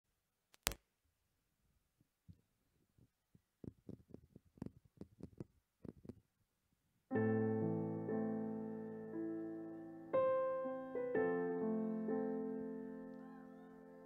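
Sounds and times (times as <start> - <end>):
piano chord ringing: 7.1 - 14.0.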